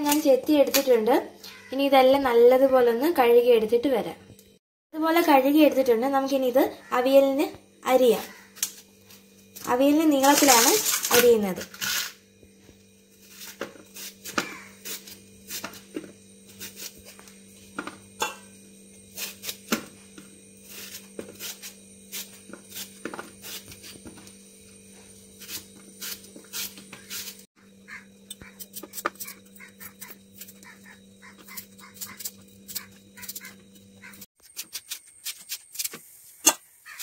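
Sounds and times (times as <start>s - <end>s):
steady low hum: 0.0s - 36.9s
knife cutting vegetables: 28.6s - 33.5s.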